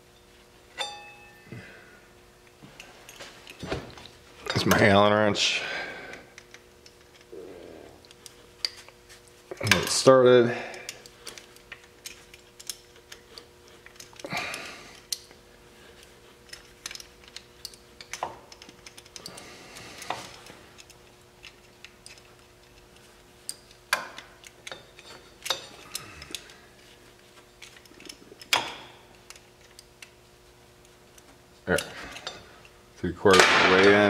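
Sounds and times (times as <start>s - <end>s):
small metal clicks and ticks: 10.7s - 15.4s, 16.0s - 26.6s.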